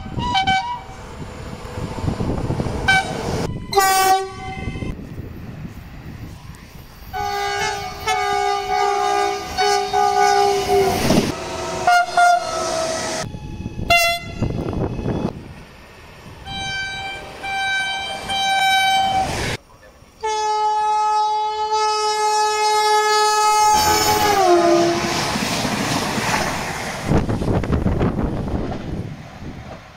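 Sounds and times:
train horn blasts: 0.0 - 1.0, 2.8 - 5.0, 7.1 - 15.3, 16.4 - 19.4, 20.2 - 25.4
passing train rushing: 0.0 - 29.9.

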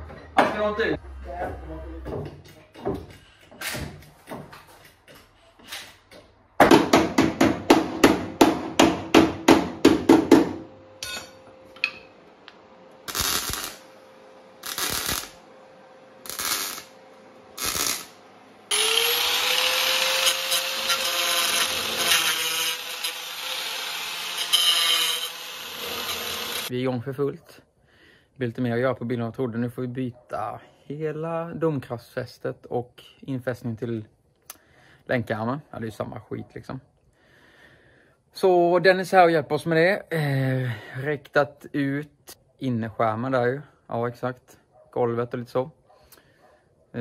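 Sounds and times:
cut-off grinder grinding steel: 14.6 - 15.4, 16.2 - 17.0, 17.6 - 26.7.

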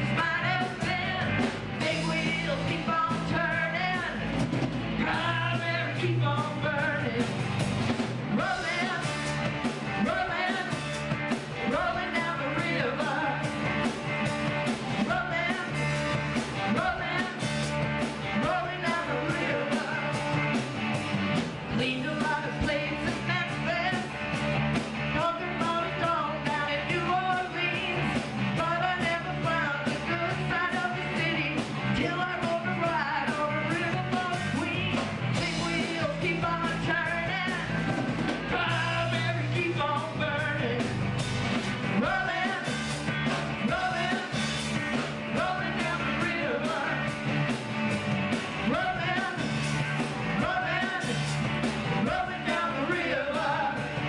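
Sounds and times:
woman singing: 0.0 - 4.3, 5.0 - 7.4, 8.3 - 9.3, 9.9 - 14.0, 15.0 - 17.4, 18.3 - 20.5, 21.7 - 24.2, 25.1 - 41.0, 42.0 - 42.8, 43.5 - 44.4, 45.3 - 47.1, 48.6 - 49.5, 50.4 - 51.2, 52.0 - 54.0
bass guitar: 0.0 - 54.0
electric guitar: 0.0 - 54.0.

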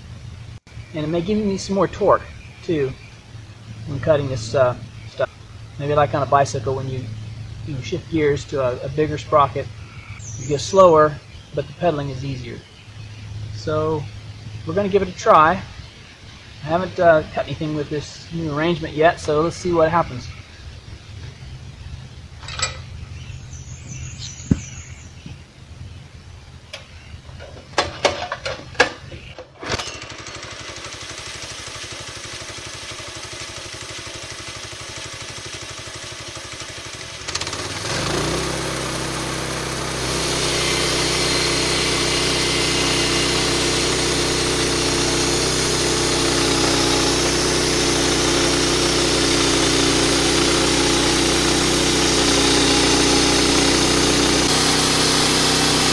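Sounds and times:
knocks and clatters: 22.4 - 23.0, 26.7 - 30.0
small gasoline engine running: 29.6 - 55.9.

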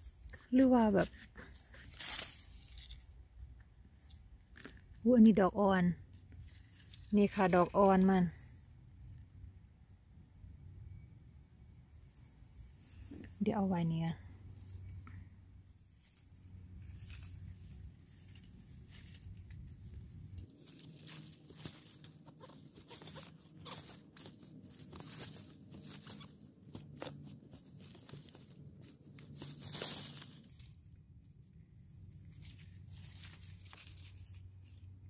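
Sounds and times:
knife crunching and scraping fungus: 20.4 - 30.7.

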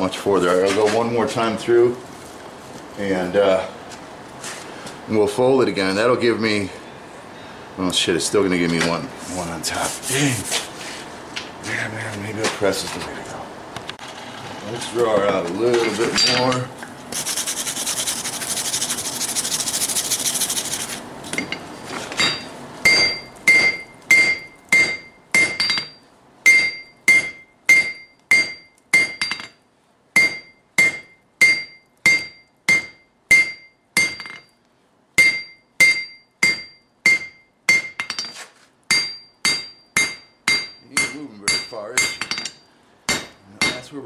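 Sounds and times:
steady hiss: 17.0 - 21.1
hammer striking steel on anvil: 22.2 - 29.6, 30.2 - 34.5, 35.2 - 44.0.

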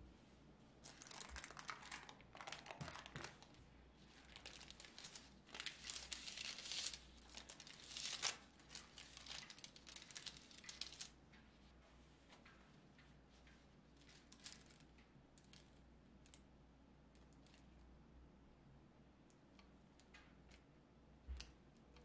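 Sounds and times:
parchment paper crinkling: 0.8 - 11.2, 13.4 - 15.0.

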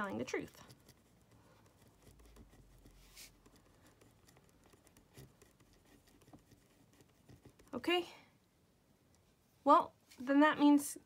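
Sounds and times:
pen scratching on paper: 0.0 - 7.8.

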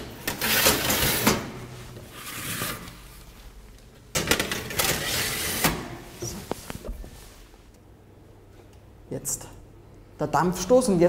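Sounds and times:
baking trays scraping on oven runners: 0.2 - 3.1.

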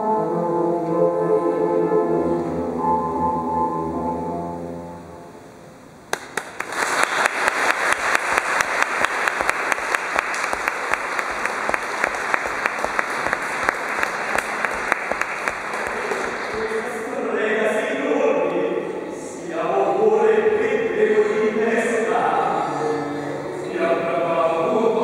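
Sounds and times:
music: 0.0 - 5.8, 10.9 - 16.9, 22.3 - 25.0
audience applause: 6.1 - 17.1.

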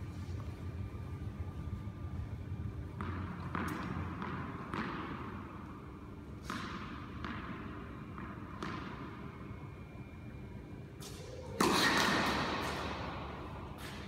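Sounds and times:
steady low hum: 0.0 - 14.0
tennis ball bouncing on hard court: 2.9 - 9.5, 11.0 - 14.0.

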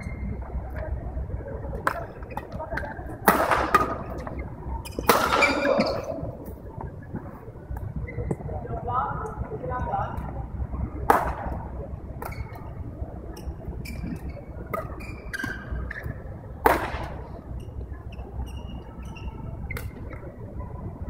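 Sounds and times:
rackets striking shuttlecocks: 1.7 - 6.6
shoes squeaking on court: 2.0 - 3.0, 3.8 - 6.4, 8.0 - 8.5, 12.2 - 16.3, 17.6 - 20.2.

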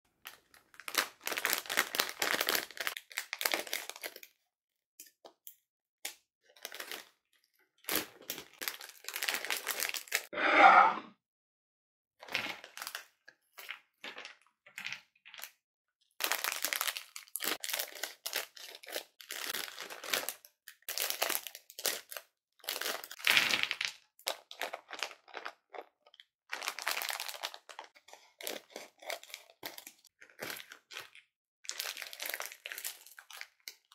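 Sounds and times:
plastic snack packets crinkling: 0.2 - 4.4, 6.1 - 10.3, 12.2 - 15.6, 16.2 - 33.9
platter sliding across stone countertop: 10.4 - 11.1.

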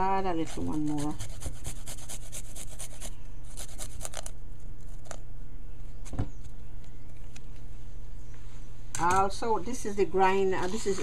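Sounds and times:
garlic rasping on metal grater: 0.3 - 4.3.

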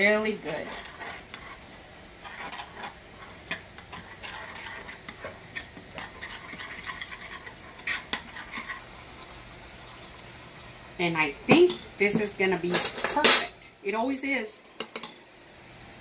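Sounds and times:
spoon stirring sauce in glass bowl: 0.2 - 10.9.

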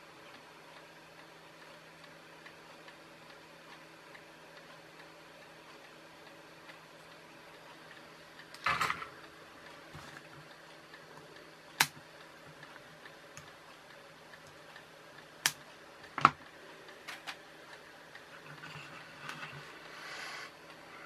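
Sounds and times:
side cutters snipping clicks: 11.8 - 12.0.

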